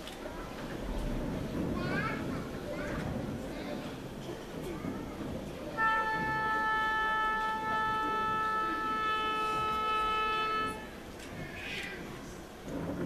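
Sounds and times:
wind instrument long steady note: 0:05.7 - 0:11.2.

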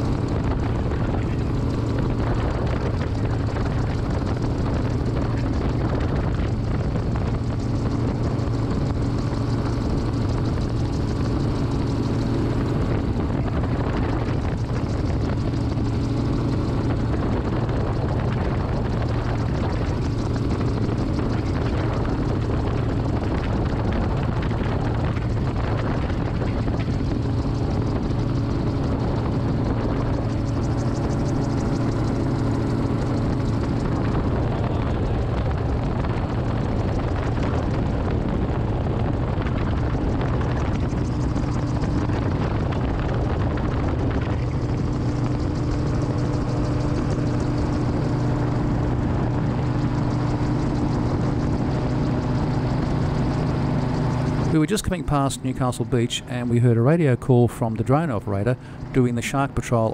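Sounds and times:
aircraft engine and propeller droning: 0:00.0 - 0:59.9
rushing air: 0:58.4 - 0:59.2.

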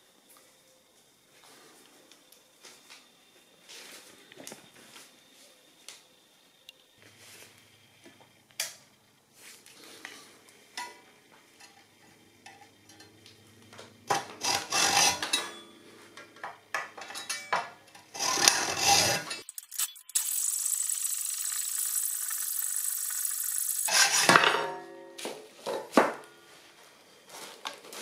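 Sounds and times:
hacksaw sawing metal: 0:14.1 - 0:15.6, 0:18.1 - 0:19.4, 0:23.9 - 0:24.7.

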